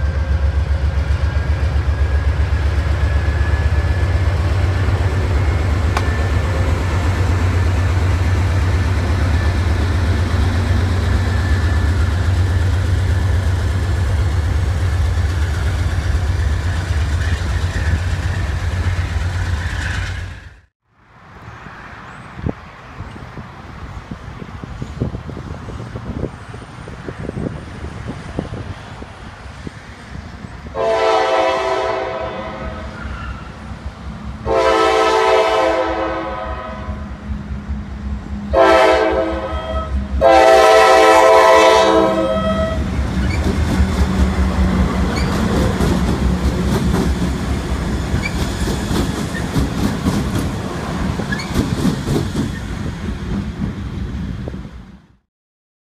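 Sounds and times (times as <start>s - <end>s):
locomotive engines rumbling: 0.0s - 54.9s
locomotive horn: 30.7s - 33.6s, 34.4s - 37.2s, 38.5s - 42.9s
wheels clicking over rail joints: 43.0s - 53.8s.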